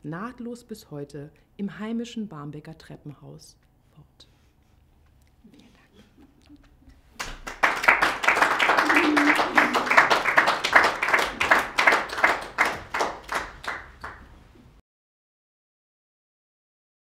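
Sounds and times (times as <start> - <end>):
audience applauding: 7.2 - 14.4.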